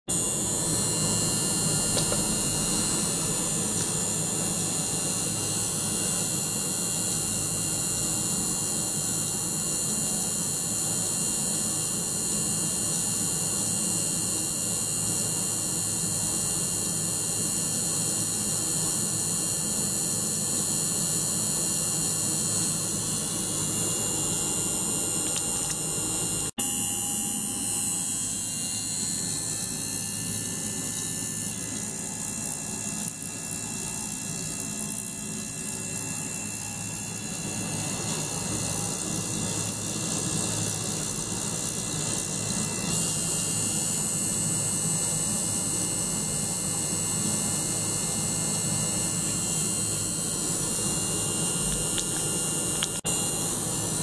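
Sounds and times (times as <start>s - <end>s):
ultrasonic cleaner hissing: 0.1s - 4.2s
constant high tones: 0.1s - 4.8s.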